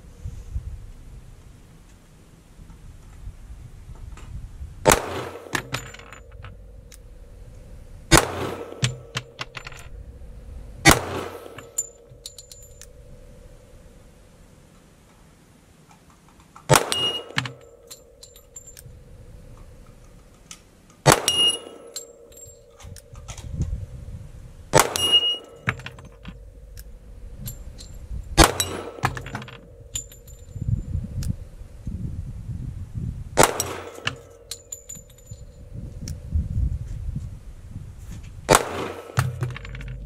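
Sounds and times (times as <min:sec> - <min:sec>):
pistol shots: 0:04.9 - 0:05.9, 0:08.1 - 0:09.3, 0:10.9 - 0:11.6, 0:16.7 - 0:17.7, 0:21.0 - 0:21.9, 0:24.7 - 0:25.6, 0:28.4 - 0:29.2, 0:33.4 - 0:34.4, 0:38.5 - 0:39.4
steel target clanging: 0:04.9 - 0:07.3, 0:08.1 - 0:10.0, 0:10.8 - 0:13.8, 0:16.7 - 0:18.8, 0:21.0 - 0:23.2, 0:24.7 - 0:30.6, 0:33.4 - 0:35.4.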